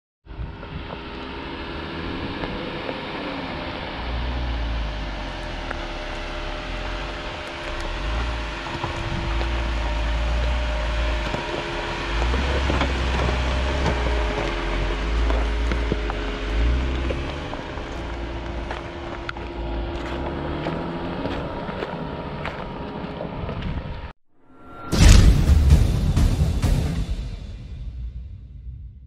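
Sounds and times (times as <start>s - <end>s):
car engine hum: 0.3s - 24.1s
tyres on rough loose ground: 6.7s - 23.9s
wind buffeting microphone: 8.0s - 14.7s.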